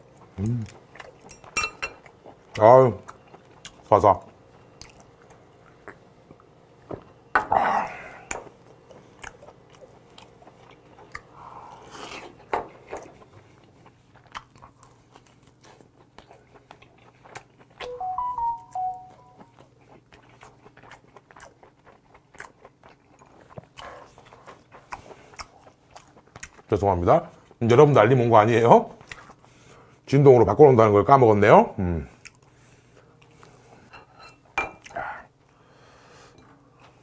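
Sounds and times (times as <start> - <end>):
chewing and mouth sounds: 0.0 - 6.5, 8.3 - 18.0, 18.8 - 27.6, 28.9 - 29.7, 32.0 - 33.7
phone notification chime: 17.8 - 19.4.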